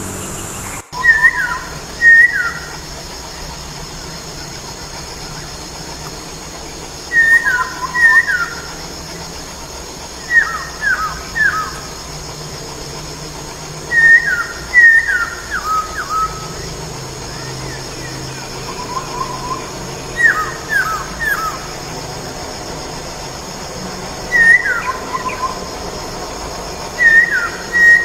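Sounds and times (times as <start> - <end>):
bird singing clear whistles: 0.1 - 2.9, 7.1 - 8.8, 10.2 - 11.9, 13.9 - 16.6, 17.3 - 21.7, 24.3 - 25.6, 27.0 - 28.0.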